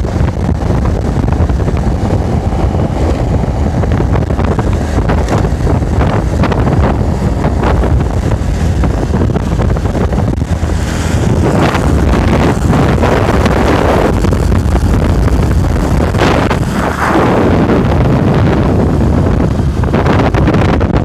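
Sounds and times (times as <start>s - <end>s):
motorbike riding noise: 0.0s - 21.0s
wind rushing over microphone: 0.0s - 21.0s.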